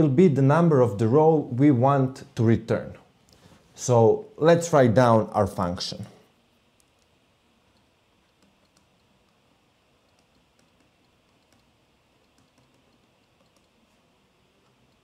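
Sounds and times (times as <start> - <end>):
stylus tapping on tablet: 7.7 - 9.4, 10.0 - 13.8.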